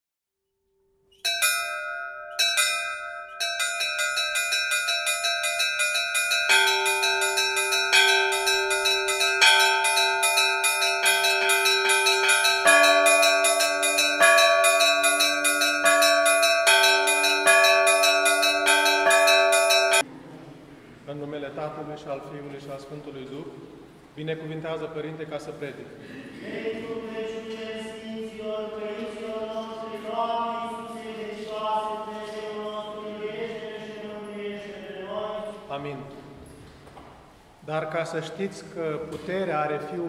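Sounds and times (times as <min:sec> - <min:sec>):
lower-pitched bells ringing: 0:01.2 - 0:20.0
church bells pealing: 0:01.3 - 0:20.0.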